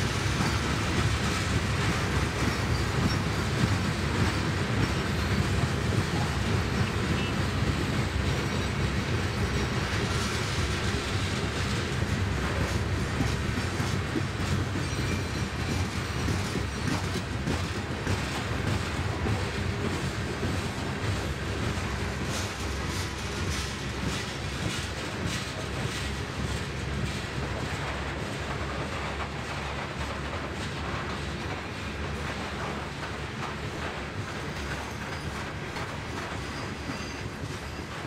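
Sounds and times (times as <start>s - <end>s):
train cars rumbling: 0.0s - 38.0s
train wheel clicks: 0.0s - 38.0s.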